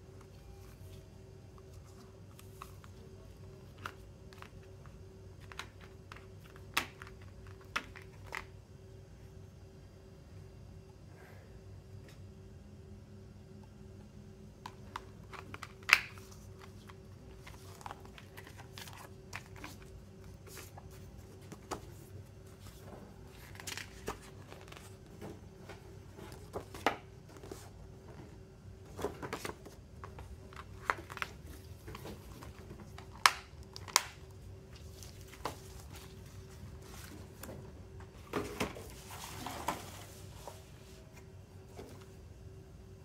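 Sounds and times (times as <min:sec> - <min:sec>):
faint steady hum: 0:00.0 - 0:43.0
plastic and paper rustling: 0:14.8 - 0:28.2, 0:28.9 - 0:41.0.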